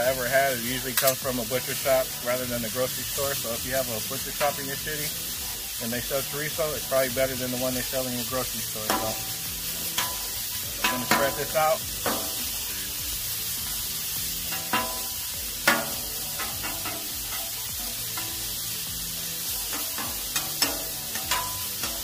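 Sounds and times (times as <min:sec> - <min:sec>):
sausage sizzling on a griddle: 0:00.0 - 0:22.0
metal spatulas scraping a griddle: 0:07.5 - 0:12.6, 0:13.6 - 0:22.0.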